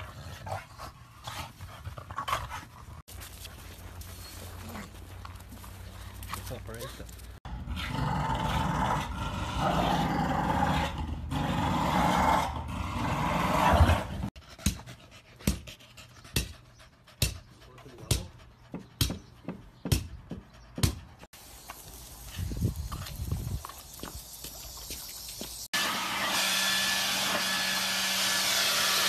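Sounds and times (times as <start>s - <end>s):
dog panting: 14.4s - 21.3s.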